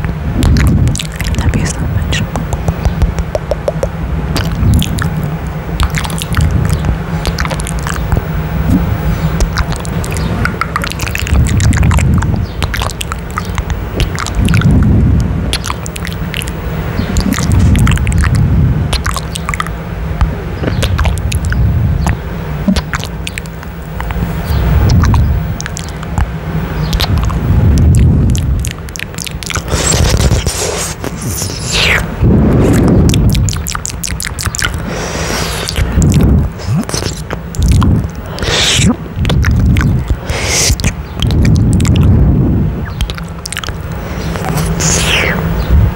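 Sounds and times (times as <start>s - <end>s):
muffled thumps of mouth on mic: 0.0s - 5.1s
kissing and lip-smacking on microphone: 0.0s - 45.9s.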